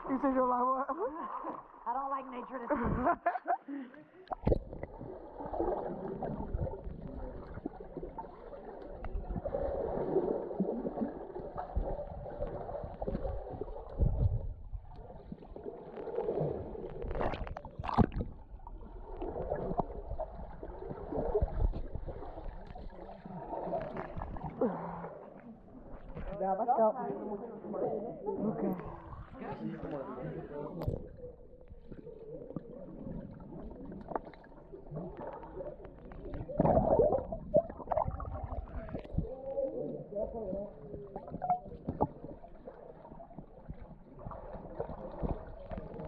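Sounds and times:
underwater gurgling and sloshing: 0:00.0 - 0:46.0
water splash: 0:04.3 - 0:14.4, 0:15.1 - 0:25.0.

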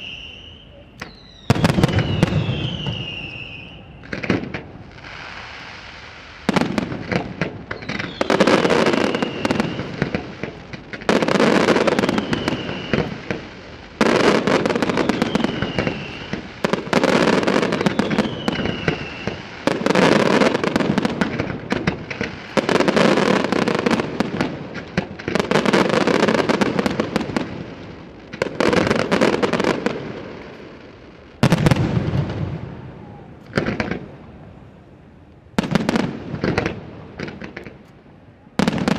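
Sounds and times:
falling firework whistles: 0:00.0 - 0:24.6
fireworks bursting and crackling: 0:00.0 - 0:38.9.

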